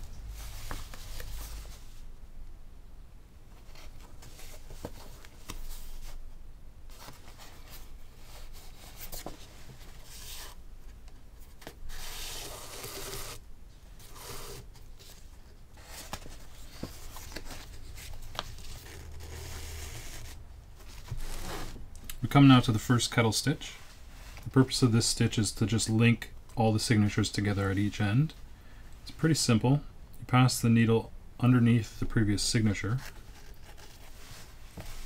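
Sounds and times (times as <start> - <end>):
paper rustling: 14.0 - 21.8.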